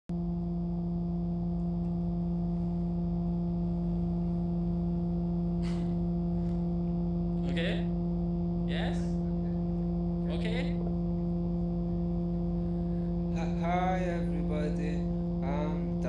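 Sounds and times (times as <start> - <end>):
low steady hum with overtones: 0.1 - 16.0
person speaking or chanting: 13.4 - 16.0.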